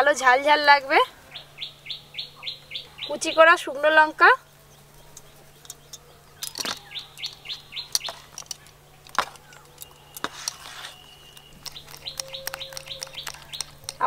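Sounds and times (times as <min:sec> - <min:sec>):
small birds chirping: 0:00.0 - 0:14.0
spoon clicking against steel bowl: 0:05.2 - 0:14.0.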